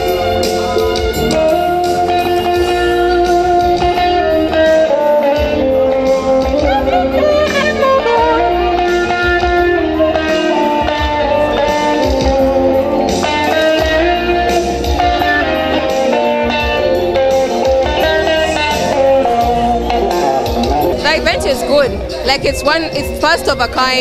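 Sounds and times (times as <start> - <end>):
amplified guitar strumming: 0.0 - 24.0.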